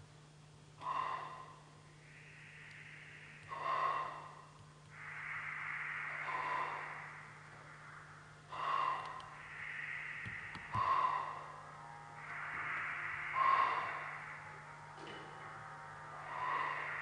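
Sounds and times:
steady low hum: 0.0s - 17.0s
breathy flute blows: 10.2s - 17.0s.

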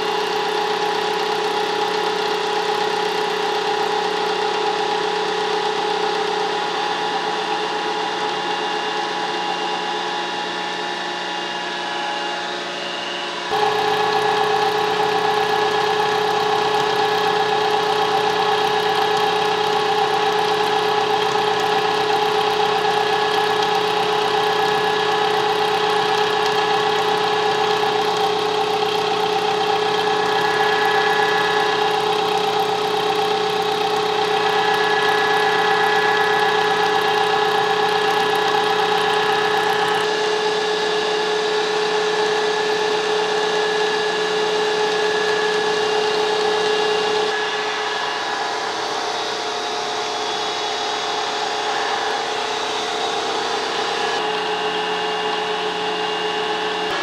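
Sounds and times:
milling machine cutting metal: 13.5s - 40.2s.

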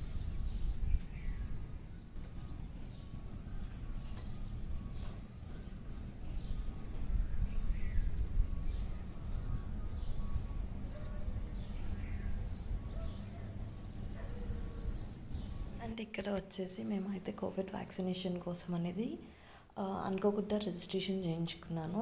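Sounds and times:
birds chirping and whistling: 0.0s - 15.9s
steady low rumble: 0.0s - 16.0s.

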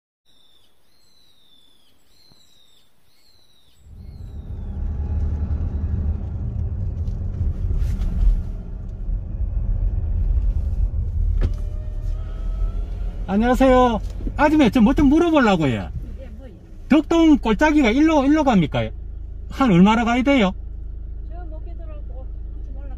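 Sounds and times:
high falling bird call: 0.3s - 4.9s
car road rumble from inside: 3.8s - 22.9s.

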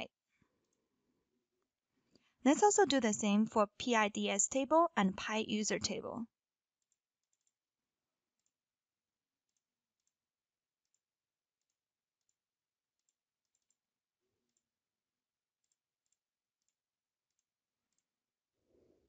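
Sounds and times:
computer mouse clicks: 6.8s - 7.6s, 9.5s - 10.2s, 13.0s - 13.8s, 15.6s - 18.1s.

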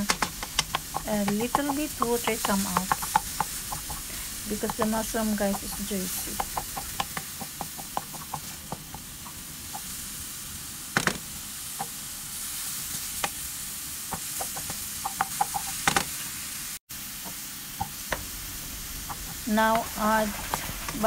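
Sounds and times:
wooden spatula scraping and tapping: 0.0s - 9.4s, 14.2s - 16.1s, 19.1s - 21.0s
mushrooms sizzling in frying pan: 0.0s - 21.0s.

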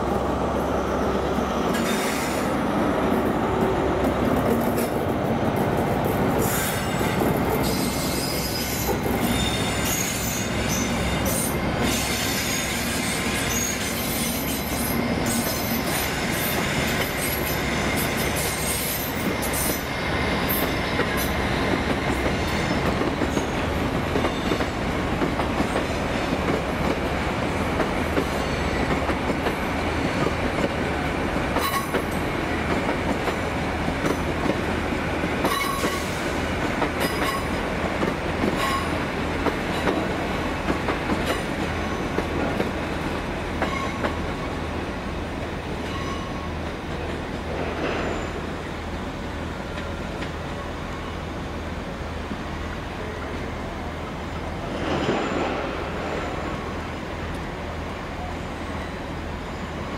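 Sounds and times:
train engines humming: 0.0s - 59.9s
train wheels squealing: 0.9s - 2.6s, 6.4s - 24.9s, 28.2s - 29.1s, 35.4s - 36.4s, 43.6s - 44.2s, 45.8s - 46.6s, 47.8s - 48.7s, 58.2s - 59.9s.

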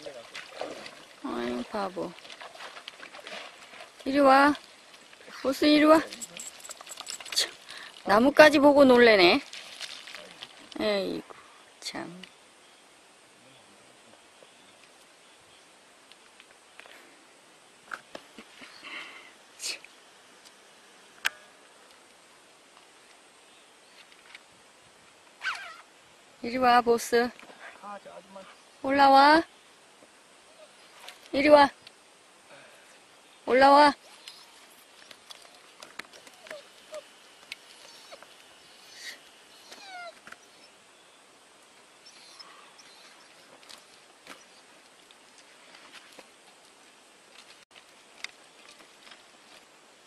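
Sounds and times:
stones clicking underfoot: 9.4s - 10.8s
dog whimpering: 25.4s - 25.9s, 36.3s - 37.1s, 37.8s - 40.8s, 42.0s - 43.4s.

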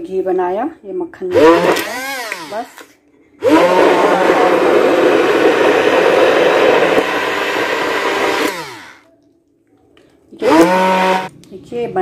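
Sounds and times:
electric blender running: 1.3s - 9.1s, 10.4s - 11.3s.

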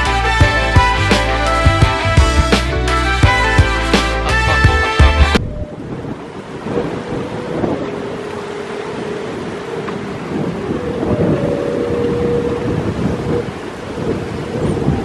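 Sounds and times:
gusty wind buffeting microphone: 5.4s - 15.0s.

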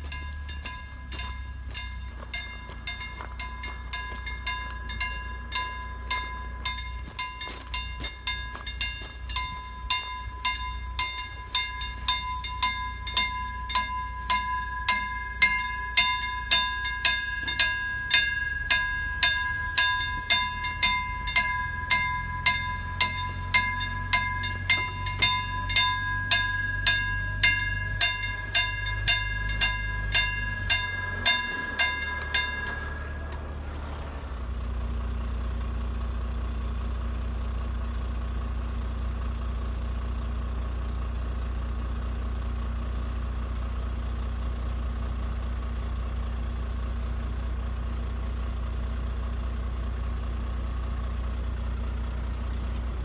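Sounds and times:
low rumble: 0.0s - 36.3s
level crossing bells ringing: 0.0s - 36.9s.

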